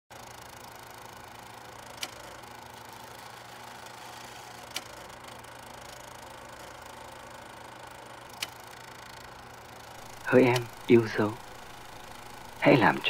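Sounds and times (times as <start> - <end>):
old film hiss and hum: 0.2 - 13.0.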